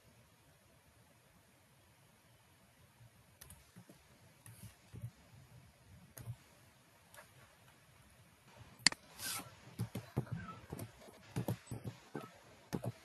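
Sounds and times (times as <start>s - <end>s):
brief hiss: 8.9s - 9.5s.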